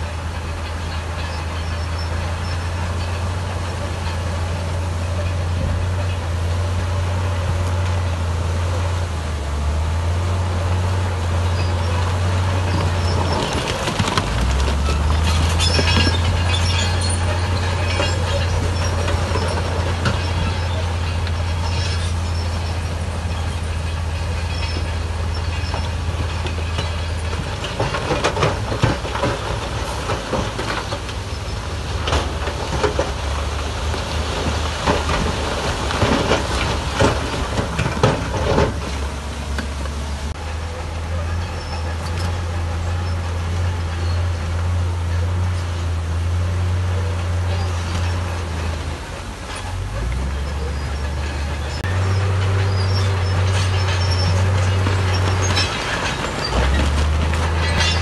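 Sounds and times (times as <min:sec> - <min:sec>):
diesel engine droning: 0:00.0 - 0:58.0
metallic clanks and knocks: 0:11.4 - 0:45.8, 0:49.4 - 0:58.0.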